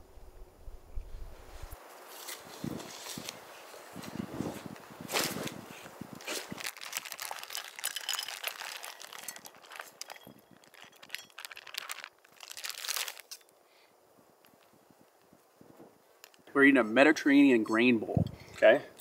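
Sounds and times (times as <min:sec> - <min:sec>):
plastic bag crinkling: 0:06.2 - 0:13.4.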